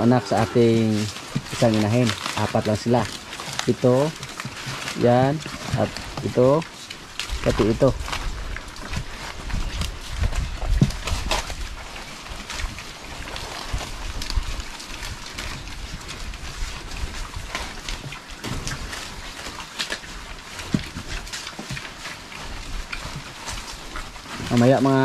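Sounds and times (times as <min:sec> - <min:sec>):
leaves rustling: 0:00.0 - 0:25.0
pigs crunching and chomping: 0:00.0 - 0:25.0.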